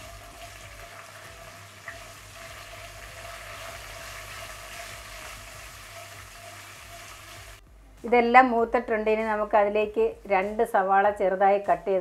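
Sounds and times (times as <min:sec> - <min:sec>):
oil sizzling in a pan: 0:00.0 - 0:07.6.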